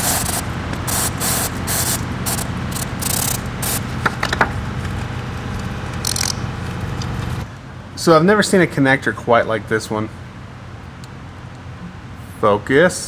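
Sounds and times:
aerosol can spray hissing: 0:00.0 - 0:03.8.

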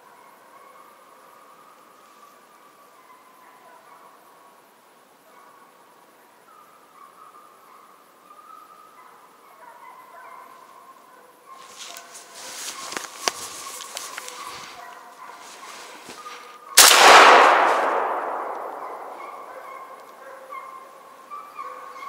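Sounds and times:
light clicks and rustles: 0:11.6 - 0:16.6
shotgun shot echoing: 0:16.8 - 0:20.2.

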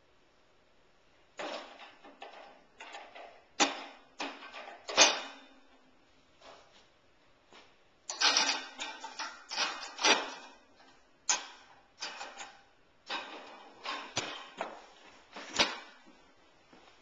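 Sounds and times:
dishes clattering in dishwasher racks: 0:01.4 - 0:05.6, 0:08.1 - 0:10.7, 0:11.3 - 0:16.0.

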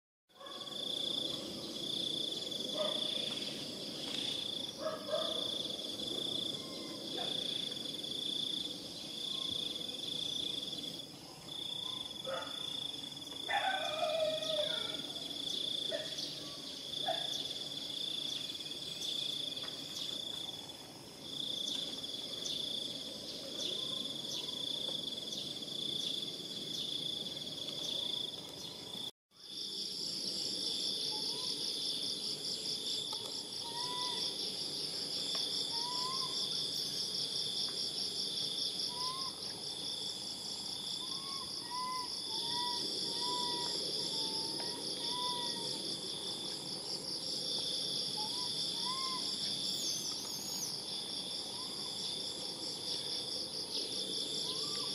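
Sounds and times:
insects trilling: 0:00.4 - 0:54.9
faint animal calls: 0:41.0 - 0:45.9, 0:48.1 - 0:49.5, 0:54.4 - 0:54.9.

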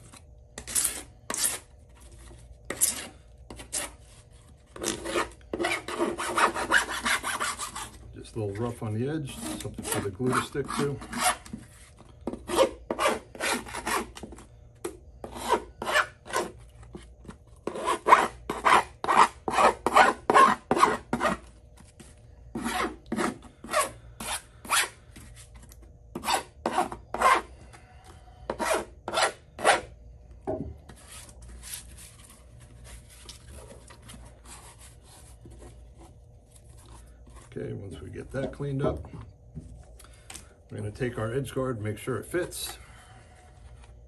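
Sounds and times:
metal file rasping: 0:04.8 - 0:08.0, 0:09.2 - 0:11.5, 0:12.3 - 0:14.2, 0:15.2 - 0:16.6.

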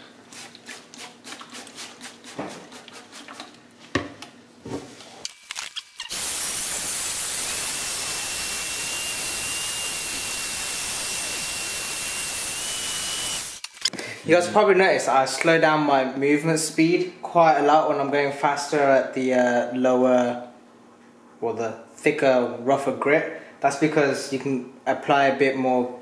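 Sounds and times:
rotary sander hissing and whining: 0:06.1 - 0:13.6.

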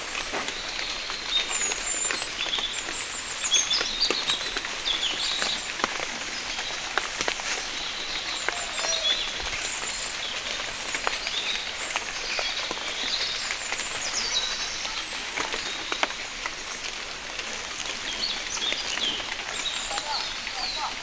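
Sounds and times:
rain pattering: 0:00.0 - 0:21.0
single raindrops landing: 0:00.0 - 0:21.0
small birds chirping: 0:00.0 - 0:21.0.

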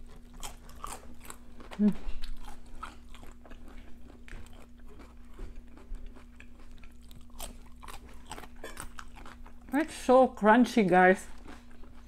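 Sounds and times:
crunching of raw vegetables: 0:00.0 - 0:09.8
faint steady hum: 0:00.0 - 0:12.0.

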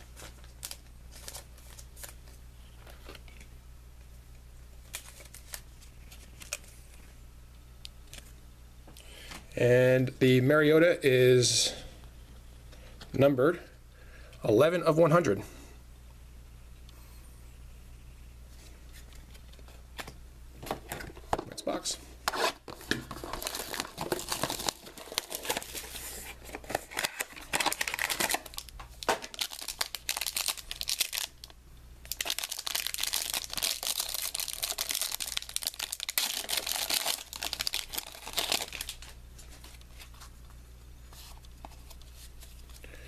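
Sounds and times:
foil wrapper crinkling: 0:04.8 - 0:06.8, 0:23.1 - 0:40.2
cards being handled: 0:36.2 - 0:42.8.

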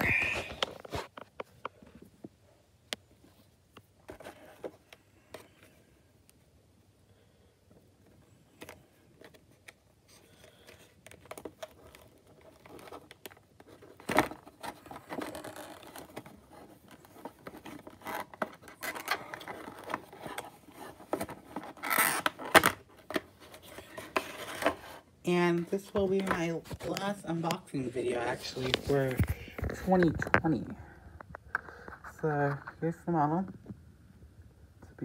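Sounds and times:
stiff plastic packaging crackling: 0:10.3 - 0:24.8.

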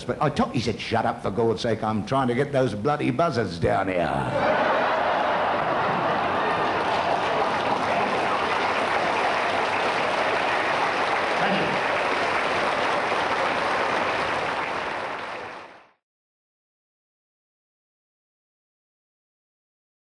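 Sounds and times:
large audience applauding: 0:04.4 - 0:16.0.

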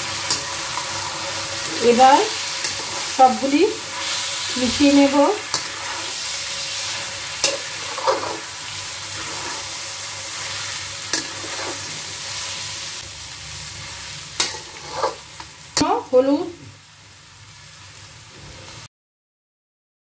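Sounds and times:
rice frying in oil: 0:00.0 - 0:18.9
metal spatula scraping pan: 0:00.1 - 0:12.6, 0:14.4 - 0:15.5.

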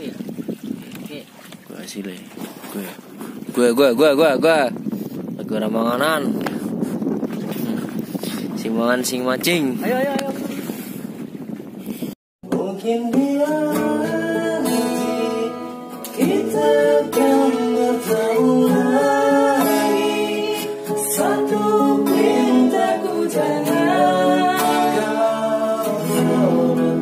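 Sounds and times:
acoustic guitar strumming: 0:12.4 - 0:27.0
man singing: 0:12.4 - 0:27.0.

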